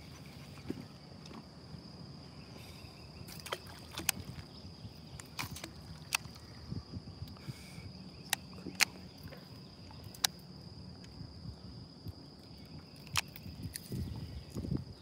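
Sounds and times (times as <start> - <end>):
water against boat hull: 3.3 - 6.6
sharp clicks: 10.1 - 10.4.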